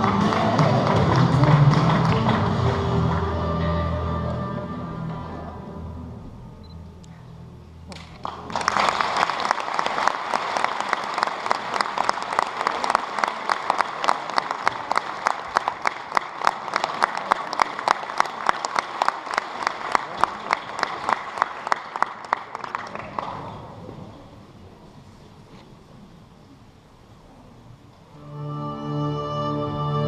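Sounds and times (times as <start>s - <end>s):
audience applause: 0.0s - 3.6s, 7.9s - 23.8s.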